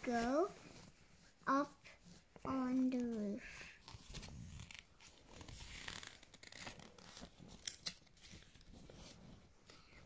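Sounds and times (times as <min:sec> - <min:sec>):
paper pages rustling: 0:02.0 - 0:10.0.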